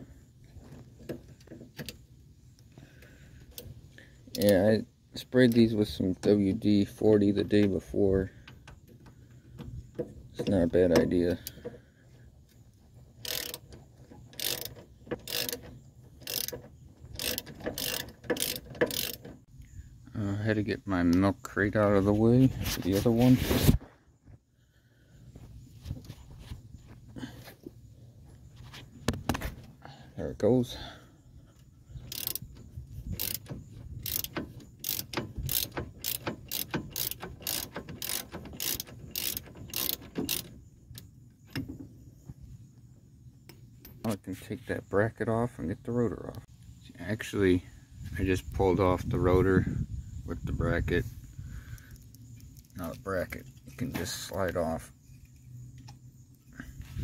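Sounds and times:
socket ratchet clicking: 13.2 - 19.4, 32.0 - 41.7.

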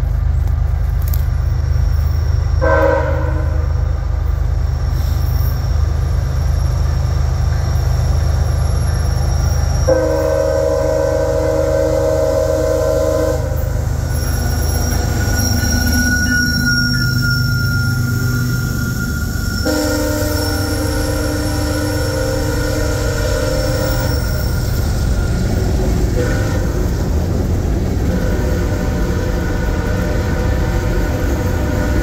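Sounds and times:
locomotive engine rumble: 0.0 - 32.0
locomotive horn blasts: 2.6 - 3.7, 9.9 - 13.8, 19.6 - 24.6, 26.2 - 26.9, 28.0 - 32.0.

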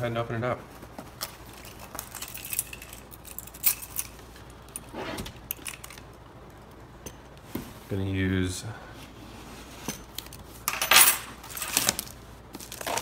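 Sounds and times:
plastic wrap rubbing: 12.0 - 13.0.

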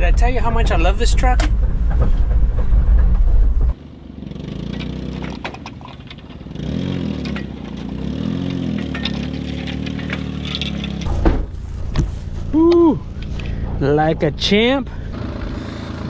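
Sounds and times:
small truck engine revving: 4.0 - 11.1, 14.9 - 16.0
light clanks and scrapes: 4.7 - 12.4.

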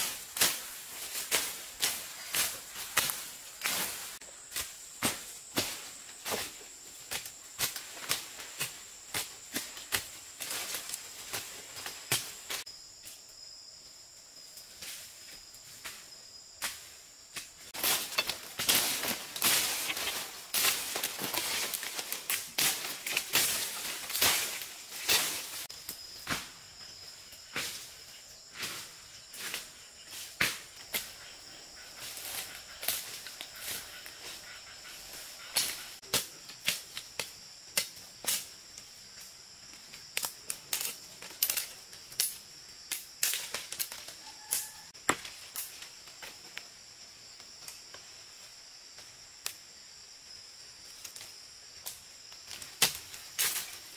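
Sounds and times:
high insect drone: 0.0 - 53.9
footsteps crunching through leaves: 17.7 - 25.7
machete swishing through undergrowth: 17.7 - 25.7.

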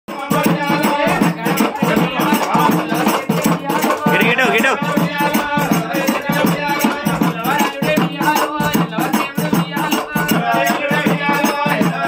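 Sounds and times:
folk devotional song singing: 0.1 - 12.0
steady rattling percussion: 0.1 - 12.0
double-headed drum beaten with stick: 0.2 - 12.0.

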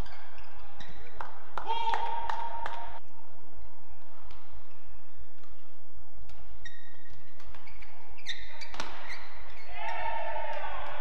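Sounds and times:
shoes squeaking on court: 0.0 - 1.3, 6.3 - 9.7
racket hitting shuttlecock: 5.4 - 9.4.

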